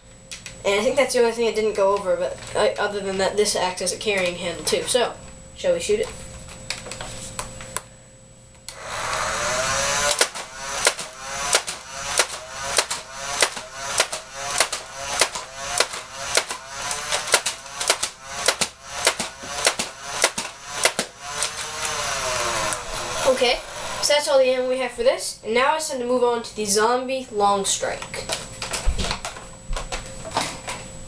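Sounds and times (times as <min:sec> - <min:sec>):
dart blaster motor whirring: 0:08.7 - 0:24.4.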